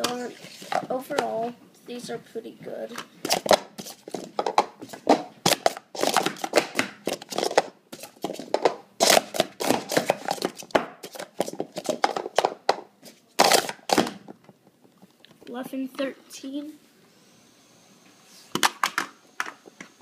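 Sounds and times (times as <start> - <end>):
plastic cups clacking: 3.0 - 15.0.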